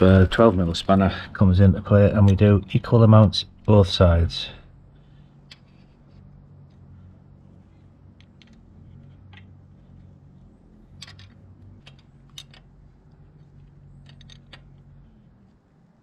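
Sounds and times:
low steady hum: 0.0s - 16.0s
spanner clicking on metal: 10.9s - 12.7s.

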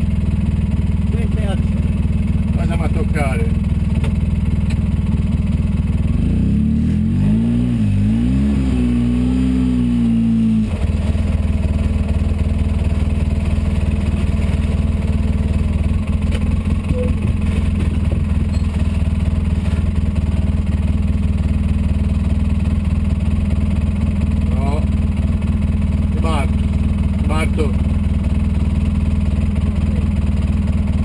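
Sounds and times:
engine revving: 6.0s - 11.3s.

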